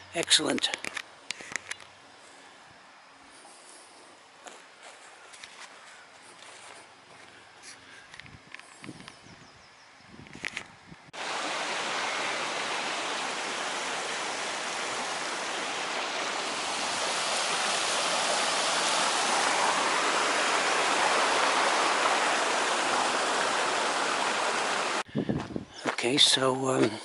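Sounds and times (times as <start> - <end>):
stream rushing: 11.2 - 25.1.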